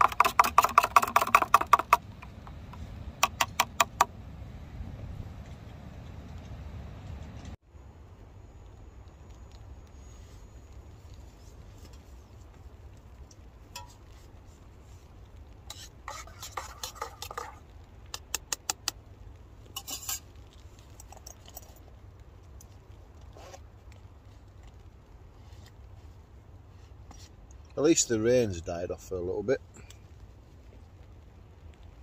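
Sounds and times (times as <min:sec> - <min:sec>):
spoon stirring in metal mug: 0:00.0 - 0:02.0, 0:15.7 - 0:17.6, 0:19.8 - 0:20.2
low steady rumble: 0:01.5 - 0:18.2.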